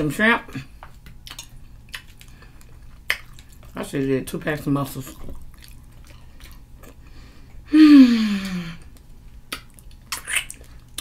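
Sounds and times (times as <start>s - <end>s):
wet finger licking smacks: 0.8s - 3.8s.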